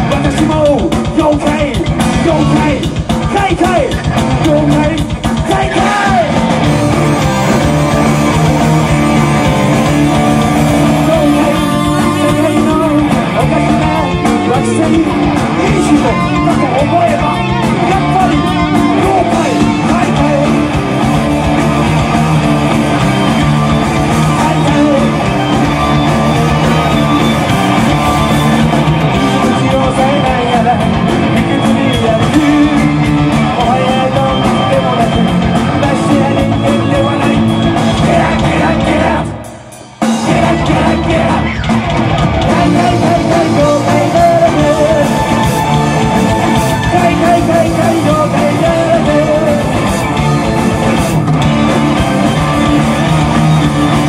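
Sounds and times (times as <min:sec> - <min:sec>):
man singing into a microphone: 0:00.0 - 0:06.4, 0:10.5 - 0:20.7, 0:24.2 - 0:25.5, 0:29.2 - 0:39.6, 0:40.2 - 0:41.7, 0:42.4 - 0:50.0
live heavy metal band: 0:00.0 - 0:54.0.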